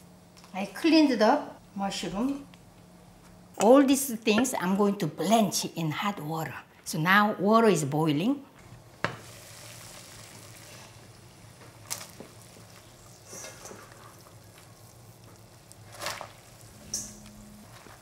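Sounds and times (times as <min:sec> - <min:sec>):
water boiling in a pot: 0:08.8 - 0:18.0.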